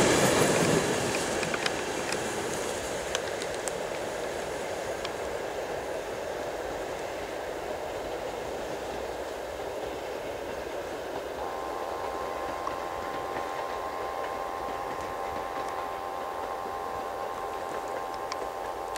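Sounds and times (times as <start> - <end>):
train wheels on rails: 0.0 - 18.9
steady whining tone: 5.0 - 18.9.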